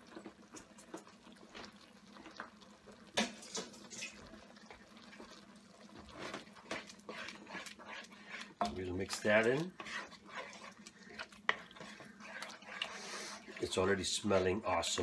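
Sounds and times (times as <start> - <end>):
spatula stirring wet sauce: 0.0 - 15.0.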